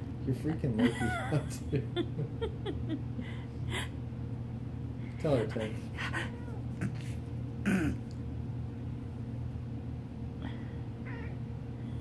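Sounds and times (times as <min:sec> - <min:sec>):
steady low hum: 0:00.0 - 0:12.0
cat meowing hoarsely: 0:11.0 - 0:11.4.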